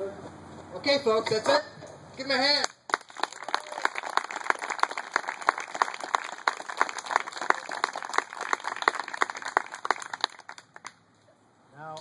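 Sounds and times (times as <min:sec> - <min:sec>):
small audience applauding: 0:02.6 - 0:11.0.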